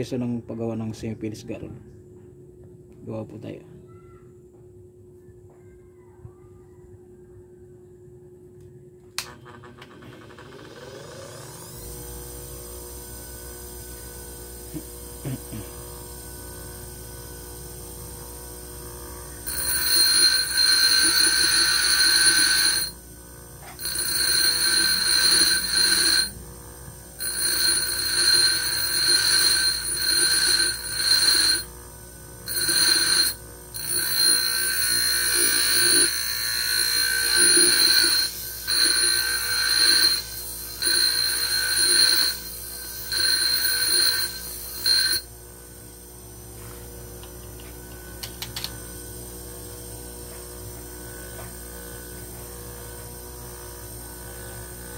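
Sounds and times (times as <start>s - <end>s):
grinder screeching on steel: 33.8s - 45.2s.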